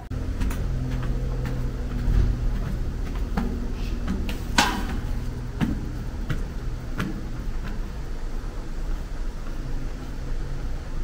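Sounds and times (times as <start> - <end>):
parking garage hum: 0.0 - 11.0
shopping trolley knocking: 0.2 - 7.4.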